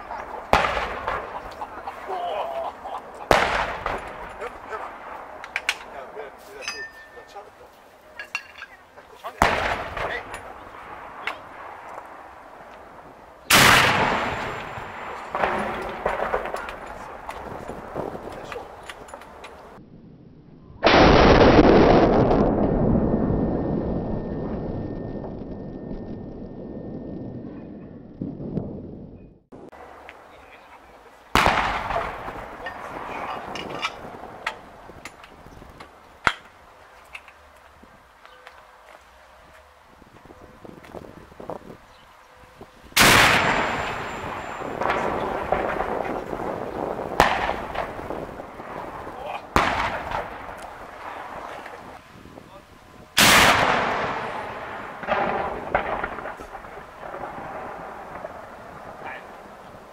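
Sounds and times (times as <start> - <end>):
quieter booms and cracks: 0.0 - 2.1, 2.7 - 6.4, 9.2 - 19.8, 20.8 - 24.6, 31.3 - 36.6, 42.9 - 52.0, 53.2 - 59.9
cannon blast: 0.4 - 1.8, 3.2 - 6.0, 9.4 - 12.5, 13.5 - 18.8, 20.8 - 24.6, 31.3 - 34.7, 43.0 - 52.0, 53.2 - 59.2
loud echoing bang: 0.5 - 1.5, 3.3 - 5.2, 13.5 - 17.1, 31.4 - 33.3, 49.6 - 50.4, 53.2 - 57.6.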